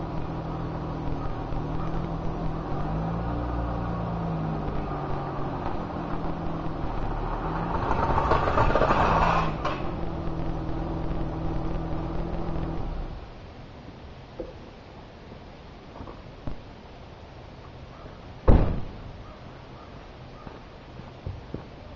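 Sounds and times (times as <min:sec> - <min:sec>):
car engine revving under load: 0:00.0 - 0:13.4.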